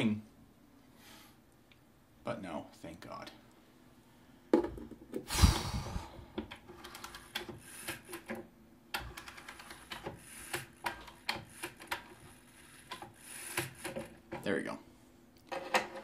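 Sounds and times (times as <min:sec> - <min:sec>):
wall clock mechanism clicking: 0:06.4 - 0:14.6.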